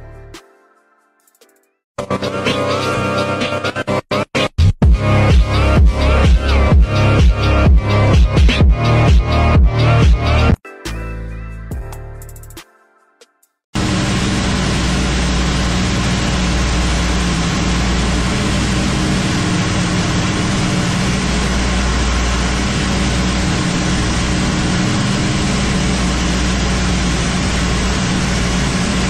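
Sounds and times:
propeller aircraft engines droning: 0:13.8 - 0:29.0.

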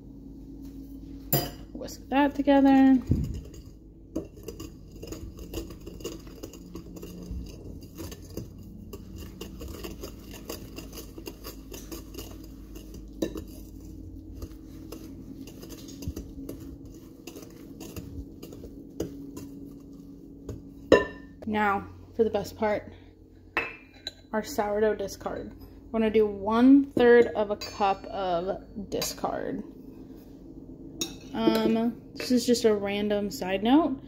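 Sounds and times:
whisk scraping and clinking bowl: 0:01.3 - 0:21.5.

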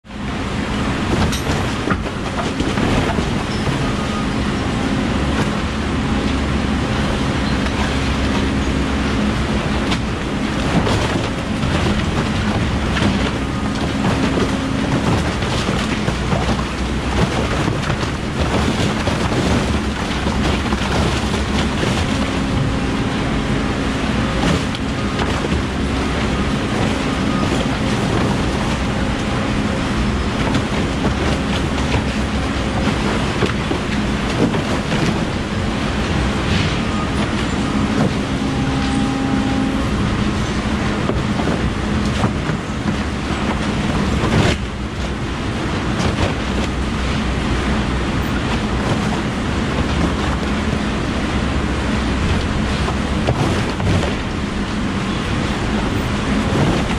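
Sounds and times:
baler machine hum: 0:00.1 - 0:56.9.

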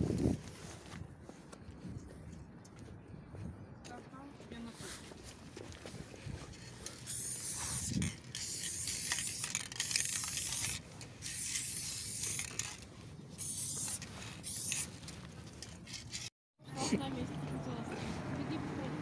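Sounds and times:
spray can hissing: 0:06.9 - 0:12.8, 0:13.4 - 0:15.0.

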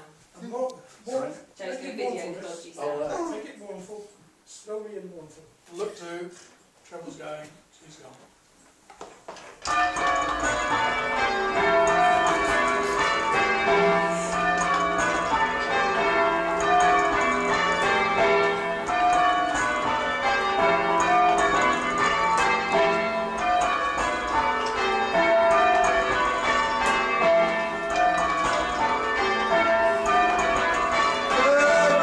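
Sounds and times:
church bells ringing: 0:09.6 - 0:32.0.

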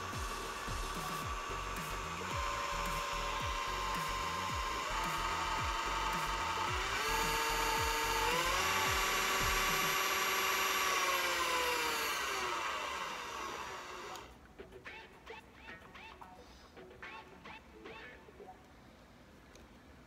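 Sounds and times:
hand mixer motor whine: 0:00.0 - 0:14.3.

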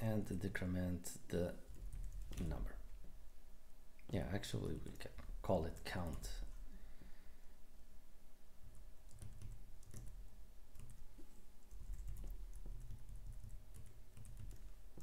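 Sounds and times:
low steady hum: 0:00.0 - 0:15.0
typing on computer keyboard: 0:01.7 - 0:02.5, 0:08.7 - 0:10.2, 0:10.8 - 0:15.0.

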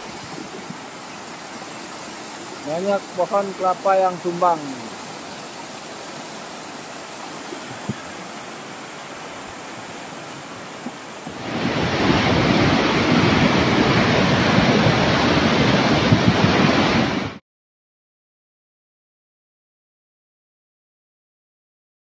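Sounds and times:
floodwater rushing roar: 0:00.0 - 0:17.4.

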